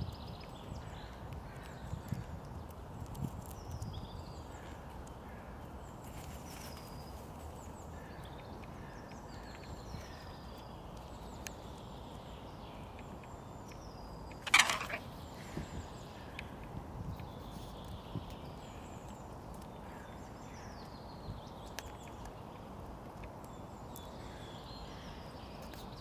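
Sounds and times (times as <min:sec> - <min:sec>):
small songbirds chirping: 0:00.0 - 0:26.0
crow calling harshly: 0:14.4 - 0:15.0.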